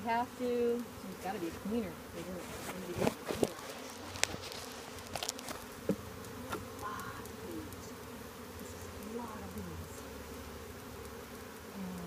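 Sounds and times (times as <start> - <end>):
honeybees buzzing: 0.0 - 12.0
wooden hive frames knocking: 0.7 - 8.0.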